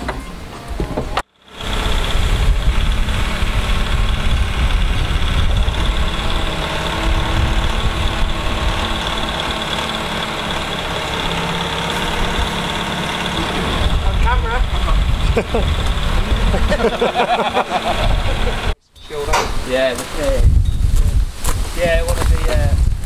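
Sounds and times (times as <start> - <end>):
diesel engine running: 0.4 - 18.8.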